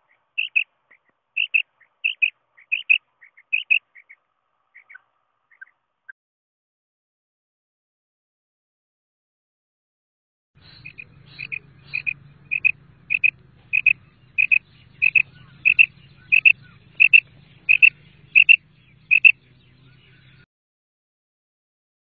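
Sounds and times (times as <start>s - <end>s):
quail calling: 0.0s - 5.8s, 10.6s - 20.4s
faint low hum: 10.6s - 20.4s.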